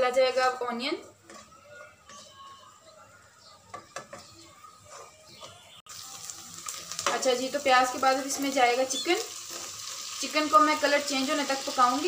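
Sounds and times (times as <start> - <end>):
spatula scraping frying pan: 0.0 - 2.4, 4.1 - 7.3, 9.2 - 12.0
faint sizzle: 4.4 - 12.0.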